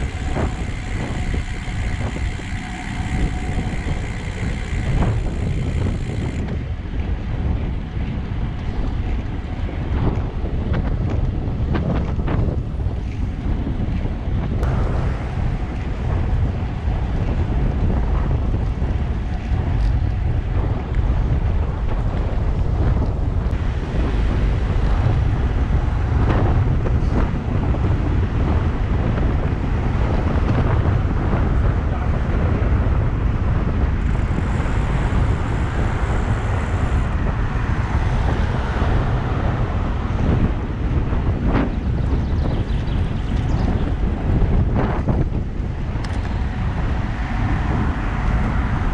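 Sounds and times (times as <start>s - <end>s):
wind buffeting microphone: 0.0s - 48.9s.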